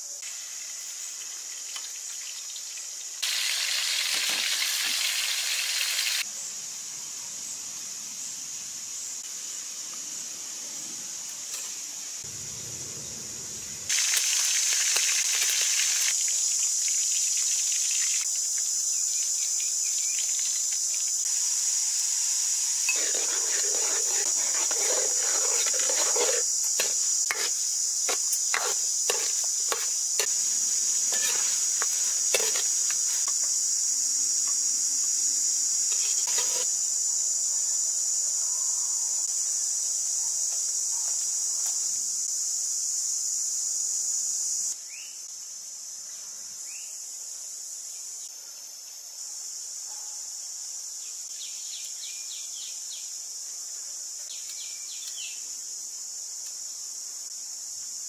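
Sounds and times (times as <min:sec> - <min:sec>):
high-pitched insect drone: 0:12.1 - 0:40.8
metal ladle scraping a wok: 0:22.9 - 0:30.4, 0:31.1 - 0:33.2, 0:35.9 - 0:36.7.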